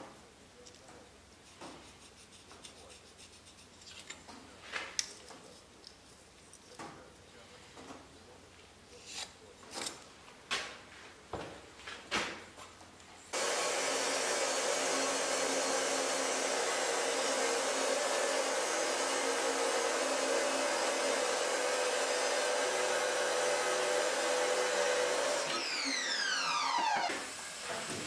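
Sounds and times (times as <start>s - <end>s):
chop saw cutting steel: 13.4s - 27.4s.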